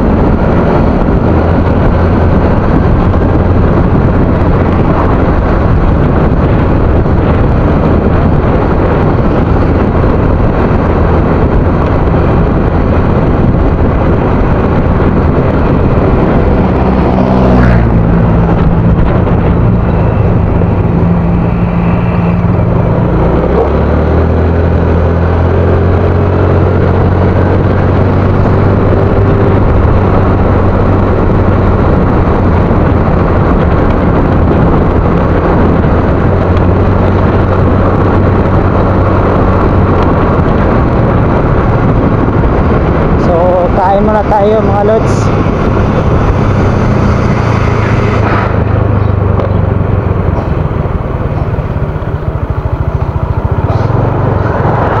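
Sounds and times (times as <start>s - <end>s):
wind and road noise: 0.0s - 55.0s
motor scooter engine running: 48.6s - 55.0s.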